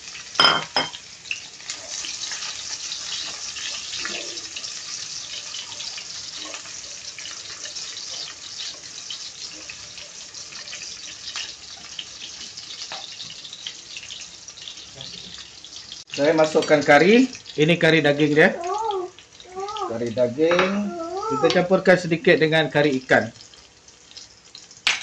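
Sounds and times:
garlic sizzling in hot oil: 0:00.0 - 0:25.0
spatula stirring in wok: 0:01.6 - 0:13.0.

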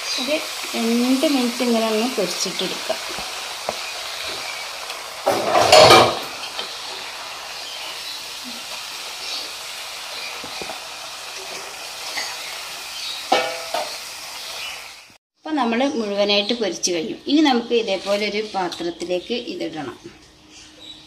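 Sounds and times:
potatoes sizzling in hot oil: 0:00.0 - 0:15.2
metal spoon clattering on pan: 0:13.3 - 0:13.9.

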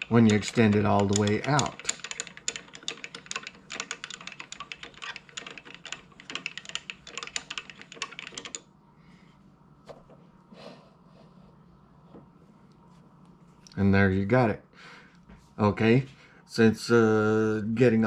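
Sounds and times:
lathe handwheel clicking: 0:00.0 - 0:08.6.

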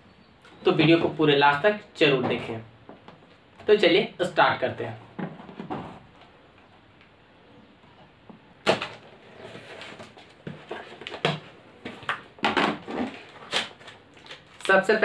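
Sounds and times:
sharp crack: 0:08.6 - 0:09.0
tape ripping off: 0:08.6 - 0:10.2, 0:12.7 - 0:14.8
cardboard crackling and rustling: 0:08.6 - 0:15.0
packing tape slit with knife: 0:12.9 - 0:14.7.

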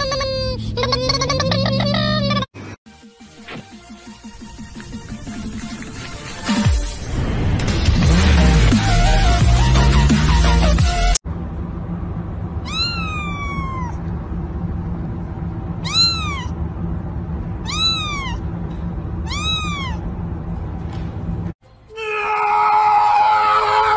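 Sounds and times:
music: 0:02.9 - 0:11.2, 0:21.6 - 0:22.1
steady low hum: 0:11.3 - 0:21.6
kitten meowing: 0:12.6 - 0:14.0, 0:15.8 - 0:16.6, 0:17.6 - 0:18.4, 0:19.2 - 0:20.0.

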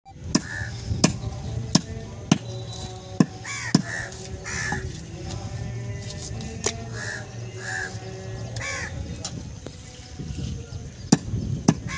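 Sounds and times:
cleaver chopping meat on wooden block: 0:00.3 - 0:01.2, 0:03.2 - 0:04.0
bird calling harshly: 0:00.3 - 0:01.6, 0:02.4 - 0:04.9, 0:06.9 - 0:09.0.

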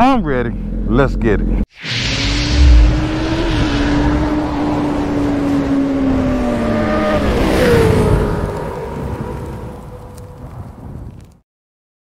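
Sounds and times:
rising whoosh: 0:01.7 - 0:08.0.

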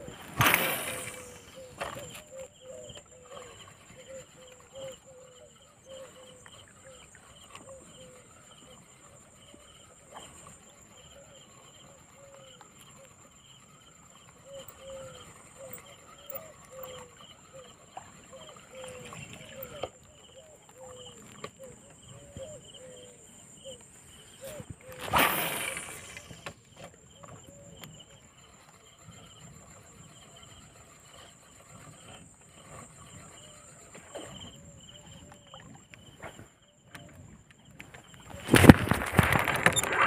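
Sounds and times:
high insect whine: 0:00.0 - 0:40.0.

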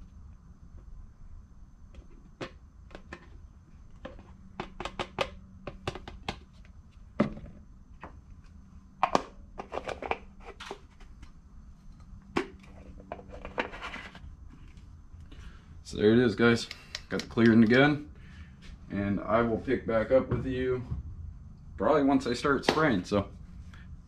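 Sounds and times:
plastic cups clicking and knocking: 0:02.0 - 0:06.5, 0:09.0 - 0:11.3.

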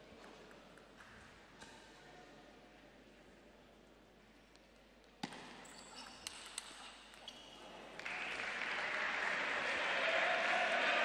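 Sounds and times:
crowd applause: 0:08.0 - 0:11.0.

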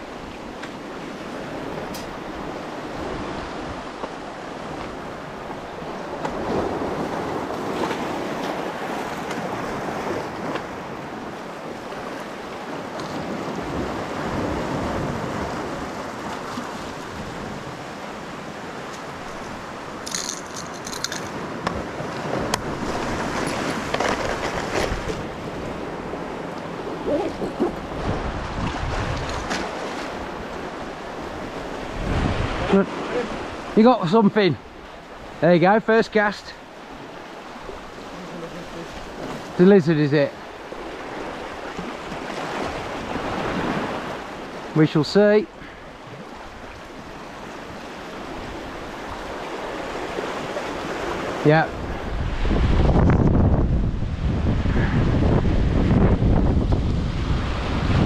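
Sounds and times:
surf washing over rocks: 0:00.0 - 0:58.0
wind buffeting microphone: 0:19.0 - 0:33.8, 0:45.9 - 0:58.0.

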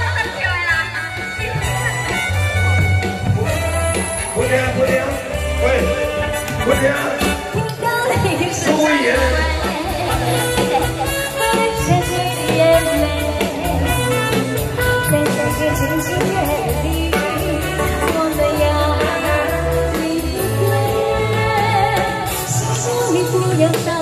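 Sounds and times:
woman singing pop song: 0:07.5 - 0:24.0.

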